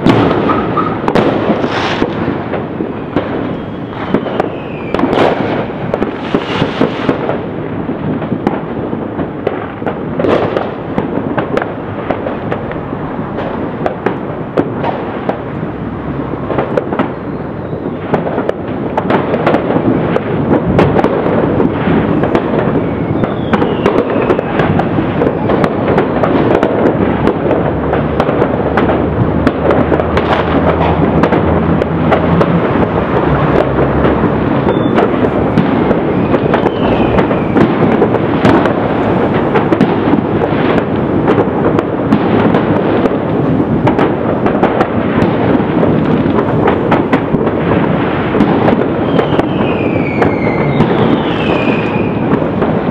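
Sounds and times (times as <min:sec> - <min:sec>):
falling firework whistle: 0:00.0 - 0:07.4, 0:16.2 - 0:19.6, 0:21.7 - 0:26.2, 0:32.0 - 0:41.4, 0:48.4 - 0:52.9
fireworks crackling and banging: 0:00.0 - 0:52.9.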